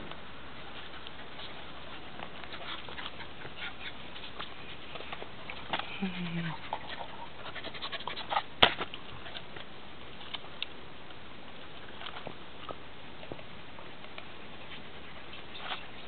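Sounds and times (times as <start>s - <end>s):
faint ticks and scrapes: 0.0s - 16.0s
dog gnawing: 0.6s - 5.9s.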